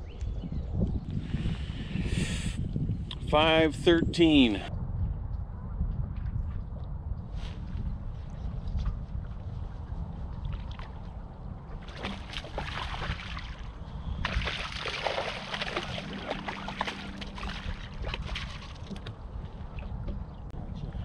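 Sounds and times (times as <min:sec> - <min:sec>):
wind rumble on microphone: 0:00.0 - 0:21.0
fish splashing in water: 0:11.8 - 0:19.8.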